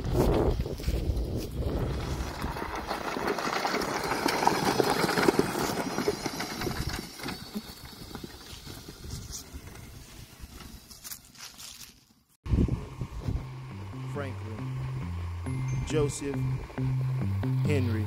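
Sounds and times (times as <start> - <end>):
tyres crunching over gravel: 0.1 - 12.3.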